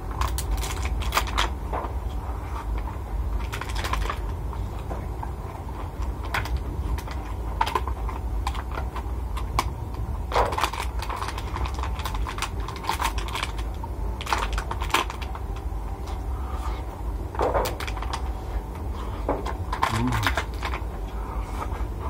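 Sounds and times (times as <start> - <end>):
steady low hum: 0.0 - 22.0
plastic box clicking and crackling: 0.1 - 1.9, 3.4 - 4.3, 6.0 - 15.7, 19.4 - 20.8.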